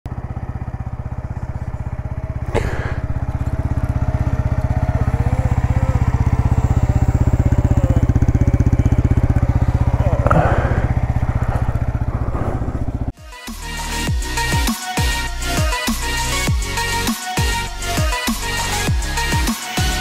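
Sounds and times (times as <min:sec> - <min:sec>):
motorcycle engine idling: 0:00.1 - 0:13.2.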